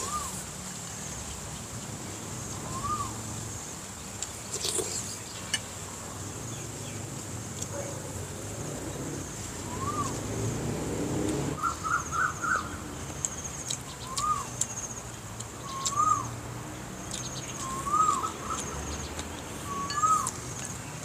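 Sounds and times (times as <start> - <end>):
bird whistling calls: 0.0 - 0.4, 2.6 - 3.2, 9.7 - 10.2, 11.6 - 12.8, 14.0 - 14.5, 15.6 - 16.3, 17.6 - 18.8, 19.6 - 20.4
crisp chewing clicks: 13.1 - 16.2, 17.0 - 21.0.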